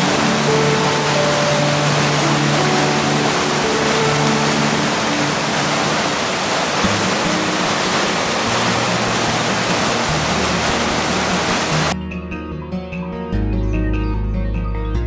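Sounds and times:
white water rushing: 0:00.0 - 0:12.0
plucked string music: 0:00.0 - 0:13.2.

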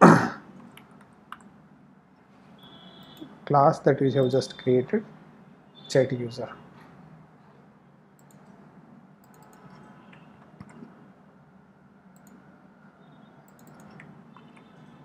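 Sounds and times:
faint steady hum: 0:00.2 - 0:15.0
mouse and keyboard clicks: 0:09.2 - 0:11.0, 0:13.5 - 0:14.7.

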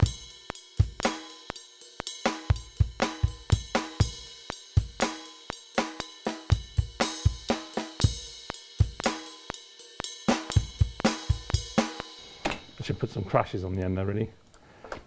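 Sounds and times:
snare drum: 0:00.0 - 0:01.6, 0:02.2 - 0:12.2
hi-hat: 0:00.0 - 0:12.4.

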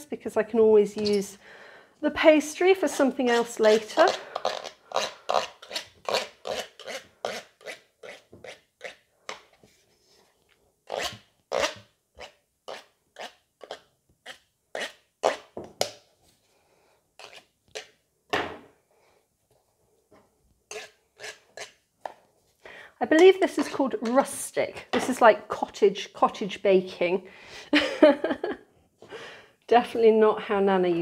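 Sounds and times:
knife scraping metal baking tin: 0:03.2 - 0:09.4, 0:10.9 - 0:15.6, 0:17.2 - 0:17.9, 0:20.7 - 0:21.8.

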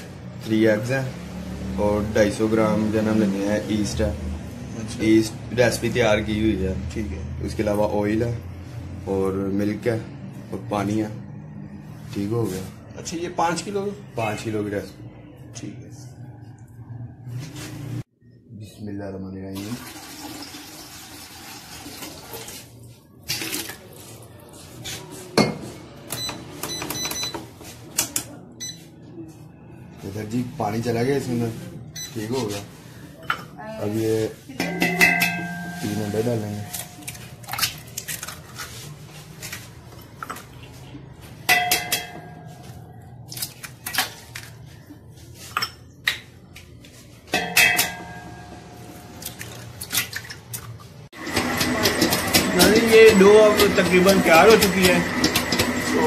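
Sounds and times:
water pouring into metal bowl: 0:19.6 - 0:24.2
short beeps from scale: 0:32.0 - 0:32.3.

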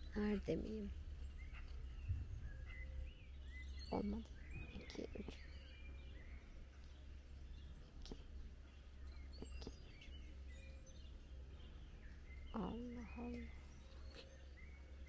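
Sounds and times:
small birds chirping: 0:00.0 - 0:15.0
steady low rumble: 0:00.0 - 0:15.0
faint person's voice: 0:03.9 - 0:05.4, 0:12.5 - 0:14.3.

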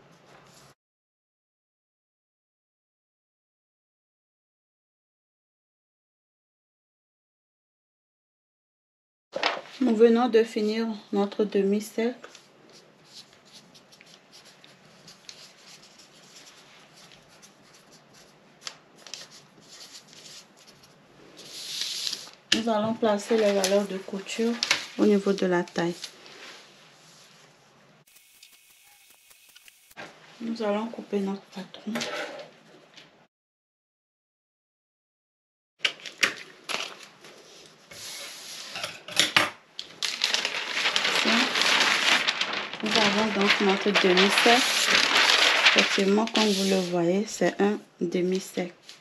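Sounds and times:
paper rustling and scratching: 0:09.4 - 0:10.0, 0:12.2 - 0:22.4, 0:23.0 - 0:27.4, 0:39.8 - 0:47.0.

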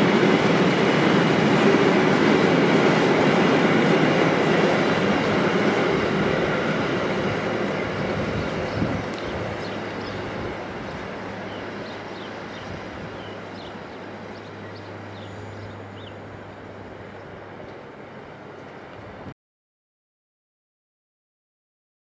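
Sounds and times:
train wheels rumbling: 0:00.0 - 0:19.2.

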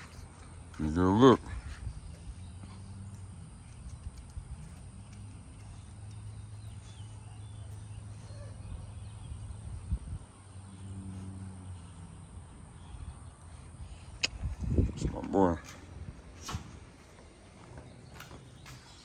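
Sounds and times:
steady low hum: 0:00.0 - 0:19.0
faint bird chirps: 0:05.6 - 0:09.9.

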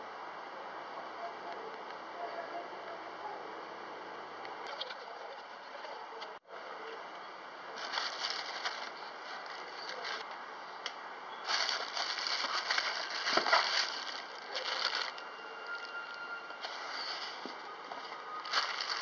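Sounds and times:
cardboard box rustling: 0:07.8 - 0:10.2, 0:11.5 - 0:15.2, 0:18.1 - 0:19.0
plastic bag crinkling: 0:07.8 - 0:10.3, 0:11.4 - 0:16.0, 0:18.2 - 0:19.0.

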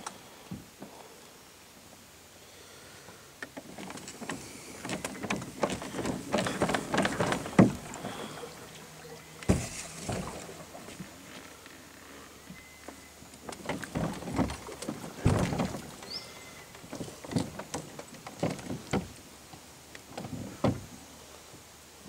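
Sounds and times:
kayak paddle knocks and splashes: 0:04.2 - 0:11.1, 0:13.6 - 0:19.2.

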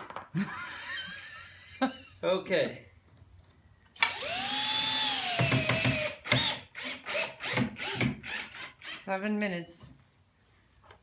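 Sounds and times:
drill motor whining: 0:04.0 - 0:09.1.

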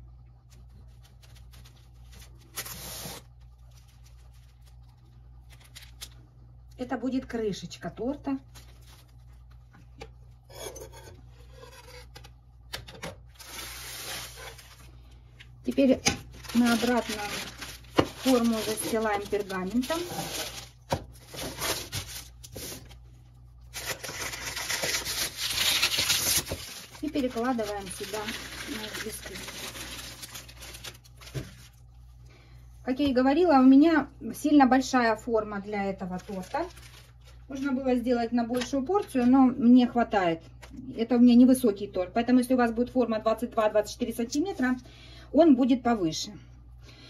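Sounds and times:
parchment paper rustling: 0:00.4 - 0:06.3, 0:08.2 - 0:09.9, 0:13.3 - 0:23.1, 0:23.7 - 0:31.9, 0:35.8 - 0:39.4.

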